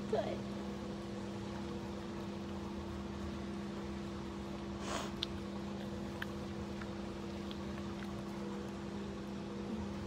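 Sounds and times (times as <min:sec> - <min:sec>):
electric pump humming: 0:00.0 - 0:10.0.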